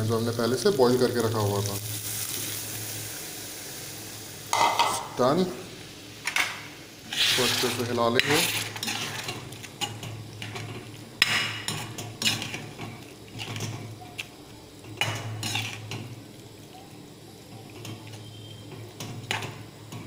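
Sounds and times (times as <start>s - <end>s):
spatula scraping metal pan: 7.0s - 10.6s, 15.4s - 15.8s.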